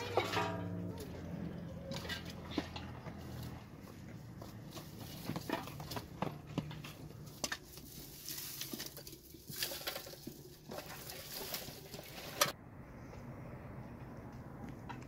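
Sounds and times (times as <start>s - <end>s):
dry twigs rustling and crackling: 0.0s - 12.6s.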